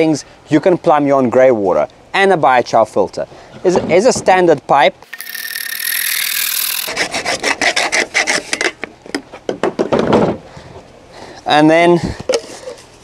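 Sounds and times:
hacksaw cutting plastic pipe: 0:05.1 - 0:08.8.

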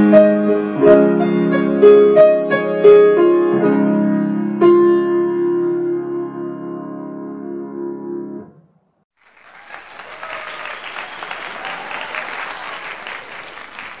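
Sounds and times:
audience applause: 0:09.1 - 0:14.0.

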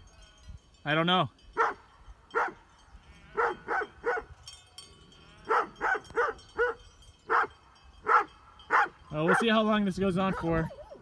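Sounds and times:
dog barking: 0:01.6 - 0:01.8, 0:02.4 - 0:02.6, 0:03.4 - 0:04.3, 0:05.5 - 0:09.6, 0:10.2 - 0:11.0.

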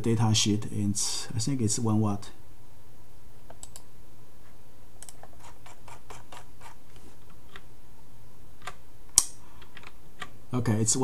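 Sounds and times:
light computer clicks: 0:03.5 - 0:03.9.

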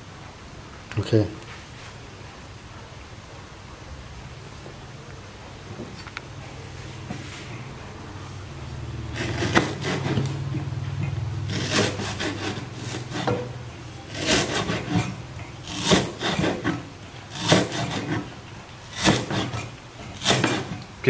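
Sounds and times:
cleaver chopping on wooden board: 0:09.2 - 0:10.3, 0:11.5 - 0:18.3, 0:18.9 - 0:20.8.

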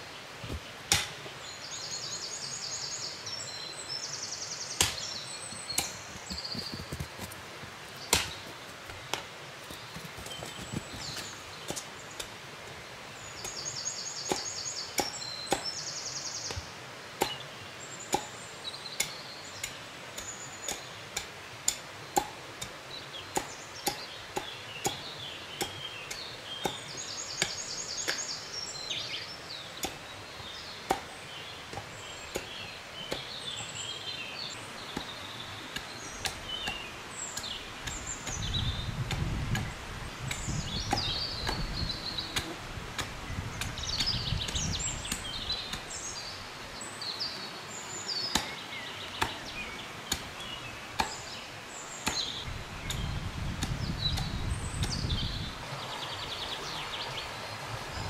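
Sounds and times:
birds singing: 0:00.0 - 0:58.0
hatchet chopping wood: 0:00.9 - 0:01.2, 0:04.8 - 0:05.1, 0:08.1 - 0:08.4, 0:14.3 - 0:15.8, 0:17.2 - 0:17.4, 0:18.1 - 0:18.4, 0:19.0 - 0:28.2, 0:30.8 - 0:33.4, 0:34.9 - 0:36.8, 0:37.4 - 0:41.7, 0:48.3 - 0:48.6, 0:49.2 - 0:49.5, 0:50.1 - 0:50.4, 0:51.0 - 0:51.4, 0:52.0 - 0:55.1.

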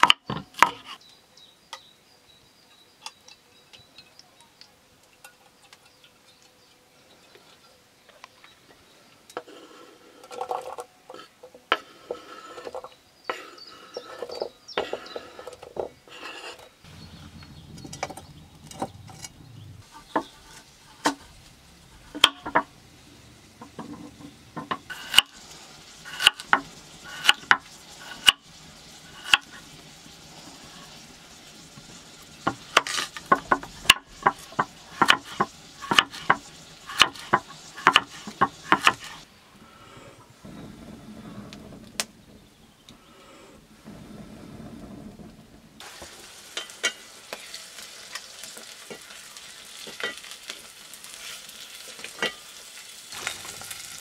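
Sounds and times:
quiet scraping: 0:09.4 - 0:26.2, 0:39.0 - 0:45.7.

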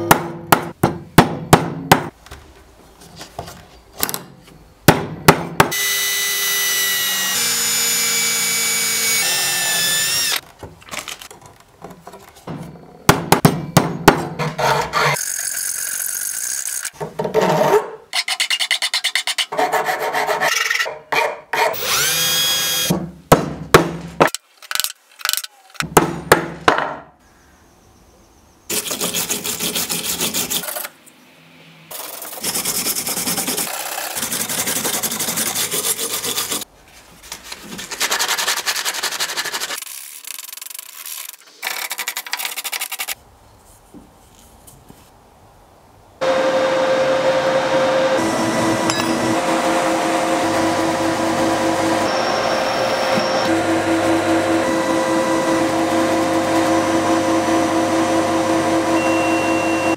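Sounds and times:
file scraping metal edge: 0:14.3 - 0:15.5, 0:17.4 - 0:21.8
hacksaw cutting metal: 0:14.3 - 0:22.9, 0:28.7 - 0:30.9, 0:48.9 - 0:49.3.

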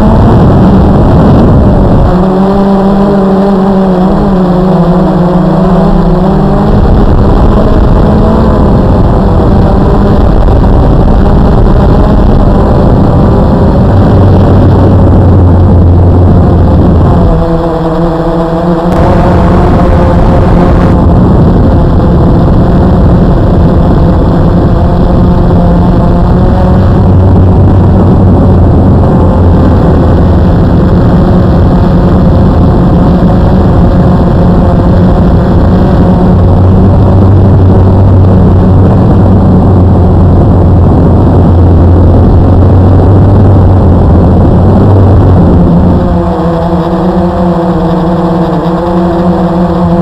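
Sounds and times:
drone propellers whirring: 0:00.0 - 0:50.0
lower hum: 0:00.0 - 0:50.0
rush of air: 0:18.9 - 0:23.7.

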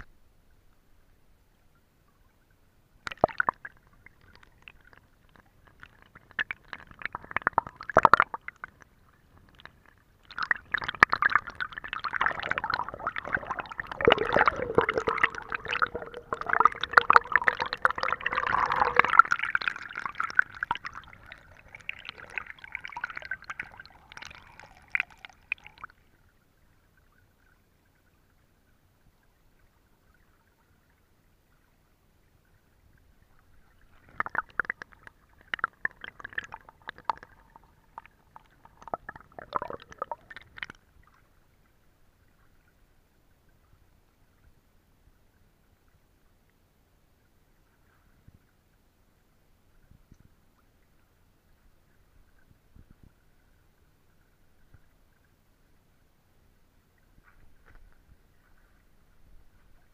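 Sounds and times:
stream gurgling over rocks: 0:03.1 - 0:25.9, 0:33.8 - 0:40.8.

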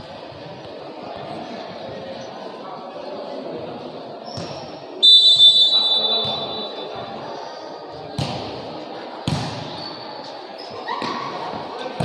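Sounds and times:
crowd murmur in echoing hall: 0:00.0 - 0:12.0
referee's whistle: 0:05.0 - 0:07.0.

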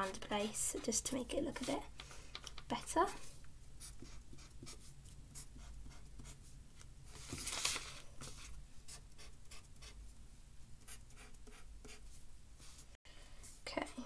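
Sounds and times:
marker pen scratching on paper: 0:00.0 - 0:01.9, 0:03.0 - 0:06.6, 0:08.2 - 0:10.1, 0:10.8 - 0:12.2.

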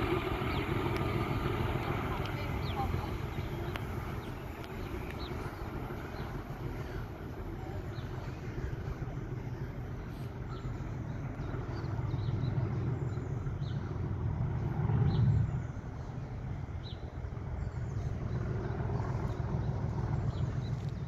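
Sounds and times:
vehicle rumble: 0:00.0 - 0:21.0.

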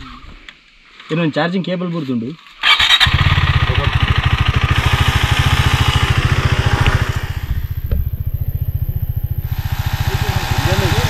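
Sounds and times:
motorcycle engine idling: 0:02.7 - 0:11.0.

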